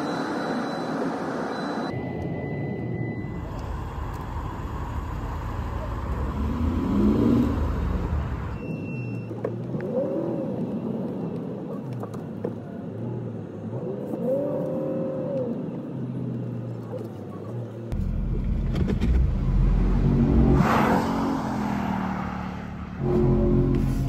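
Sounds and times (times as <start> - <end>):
car engine revving: 4.8 - 8.6, 17.9 - 24.0.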